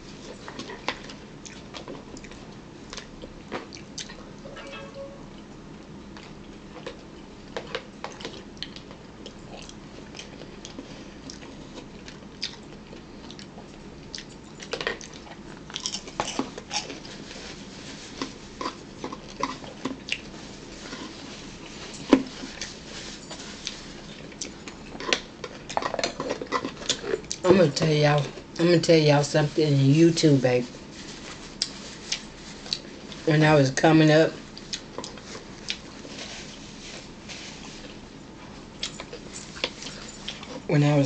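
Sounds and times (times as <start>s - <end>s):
chewing and biting: 6.2s - 17.2s, 34.6s - 36.1s.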